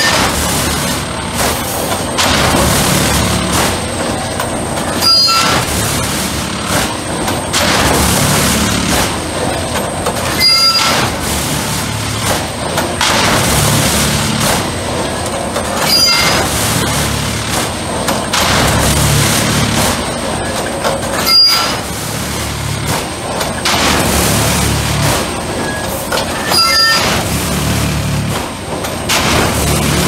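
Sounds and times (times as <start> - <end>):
track tamping machine din: 0.0 - 30.0
brief machine squeal: 5.0 - 5.6, 10.3 - 11.1, 15.8 - 16.5, 21.2 - 21.9, 25.6 - 27.2.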